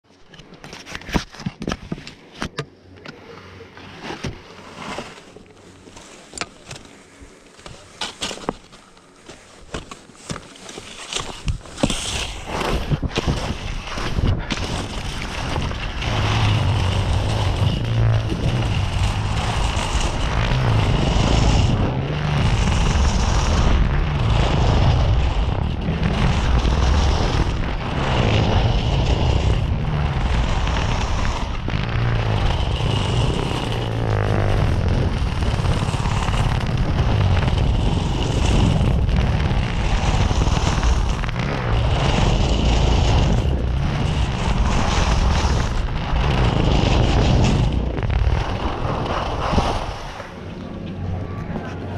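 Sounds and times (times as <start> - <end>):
skis carving on snow: 0.3 - 51.9
wind buffeting microphone: 12.4 - 51.9.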